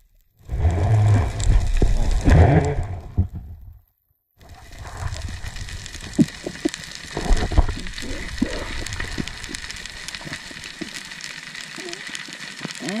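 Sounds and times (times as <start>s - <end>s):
underwater rumble: 0.0s - 13.0s
underwater clicks and knocks: 5.9s - 11.0s.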